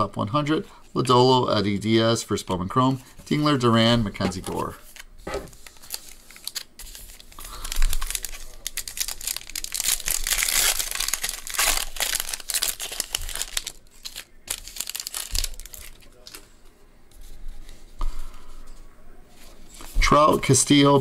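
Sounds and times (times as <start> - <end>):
foil wrapper tearing and crinkling: 4.5 - 16.4.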